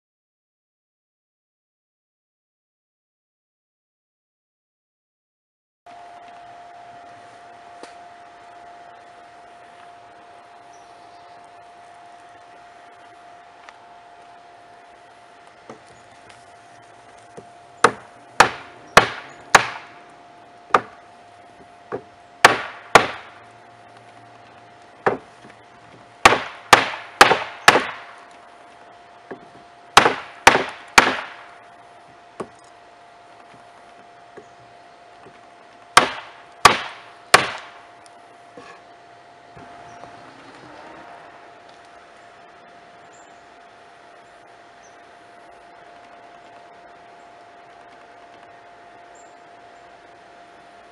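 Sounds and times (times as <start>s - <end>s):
hammer striking hot metal: 22.4s - 23.3s, 26.2s - 28.1s, 30.0s - 31.4s, 36.0s - 37.7s.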